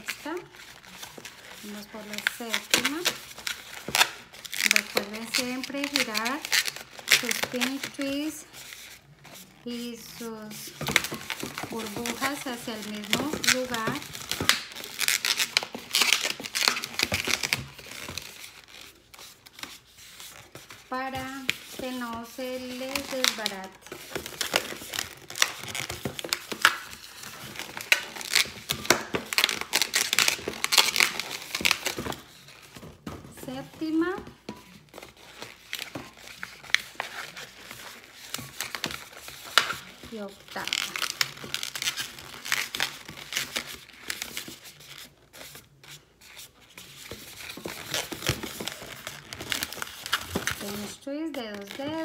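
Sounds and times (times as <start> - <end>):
balloon twisting squeaks: 0.0 - 52.0.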